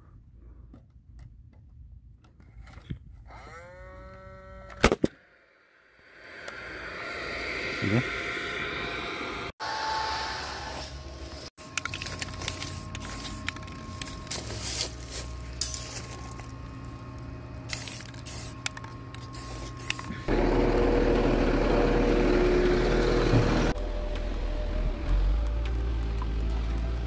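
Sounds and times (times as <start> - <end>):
low hum: 4.0 - 9.6, 10.5 - 27.0
truck engine rumble: 11.1 - 27.0
handling clicks and rustling: 11.6 - 20.1.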